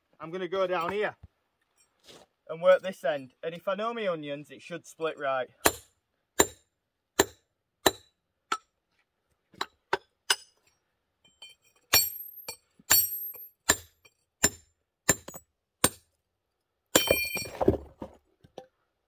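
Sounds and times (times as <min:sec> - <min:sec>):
hammer striking steel chisel: 0:05.6 - 0:06.6, 0:07.2 - 0:08.7, 0:09.6 - 0:10.7, 0:11.3 - 0:16.0.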